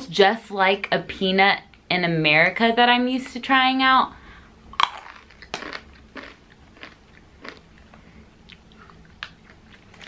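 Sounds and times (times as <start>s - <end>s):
person chewing crunchy peanuts: 4.8s - 10.0s.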